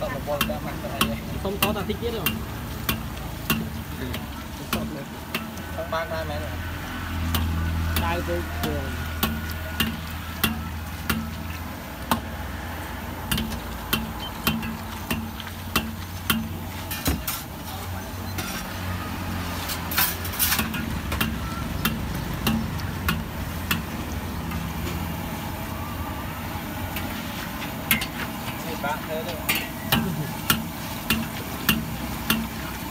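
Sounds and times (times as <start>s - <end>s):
deep-frying sizzle: 0.0s - 32.9s
steel ladle knocking on wok: 0.4s - 5.6s, 29.4s - 32.6s.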